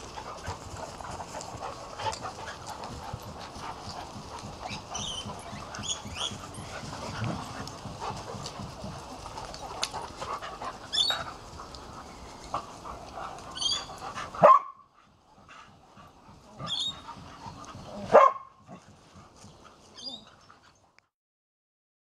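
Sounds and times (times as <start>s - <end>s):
dogs play-fighting: 0.0s - 21.1s
dog barking sharply: 14.4s - 14.8s, 18.1s - 18.5s.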